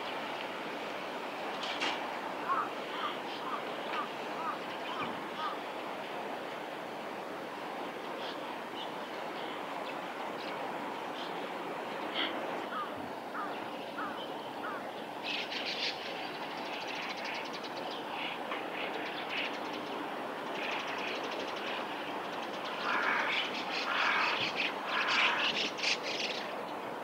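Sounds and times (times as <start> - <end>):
small birds chirping and trilling: 12.0 - 26.8.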